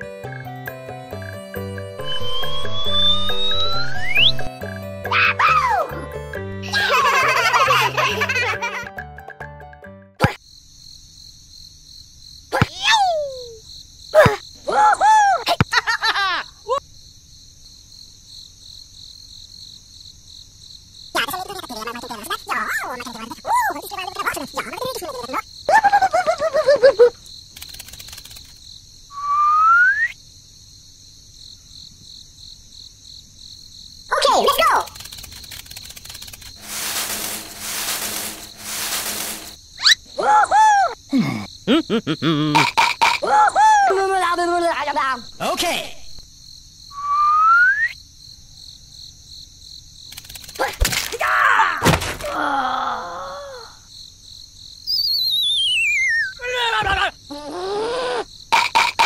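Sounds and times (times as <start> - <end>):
high chirring like crickets: 0.0 - 8.8, 10.2 - 59.0
quick rising whistle: 2.0 - 4.5
rustling and scratching in a tree: 27.5 - 28.7, 34.2 - 39.7, 50.0 - 51.2
sharp clicks: 27.6 - 28.6, 34.8 - 36.6, 50.1 - 50.6
squeaky cartoon character voice: 34.1 - 35.0
squeaky cartoon voice chattering: 42.5 - 43.3.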